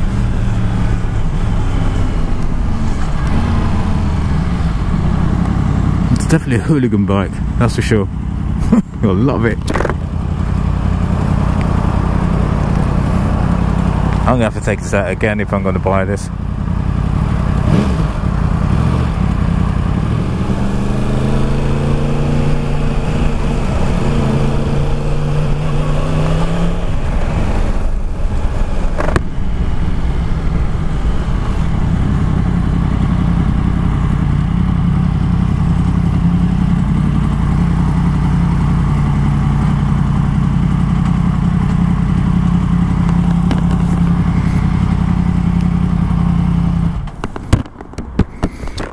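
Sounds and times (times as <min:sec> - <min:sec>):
motorcycle engine revving and idling: 0:00.0 - 0:48.9.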